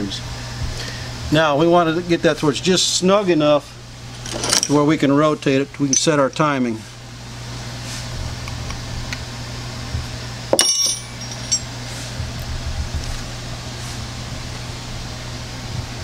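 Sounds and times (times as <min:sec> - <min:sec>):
steady low hum: 0:00.0 - 0:16.0
wrench metallic clink: 0:10.6 - 0:11.7.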